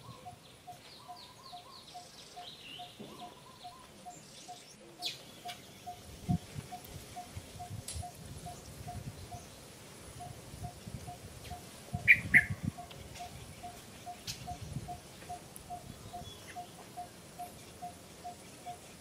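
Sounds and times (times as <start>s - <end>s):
sharp high bird chirps: 12.0s - 12.6s.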